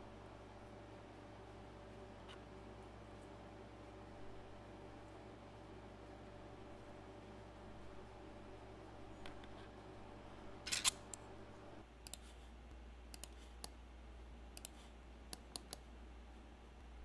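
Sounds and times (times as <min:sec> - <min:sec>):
low steady hum: 0:00.0 - 0:17.0
computer mouse clicks: 0:12.0 - 0:12.3, 0:13.1 - 0:13.8, 0:14.6 - 0:15.8.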